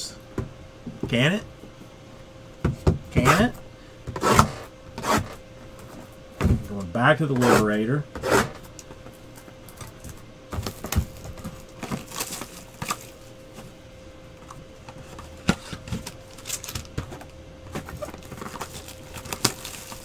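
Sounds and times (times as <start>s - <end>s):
faint steady hum: 0.0s - 20.0s
shrink-wrap crinkling: 10.6s - 13.7s, 15.0s - 20.0s.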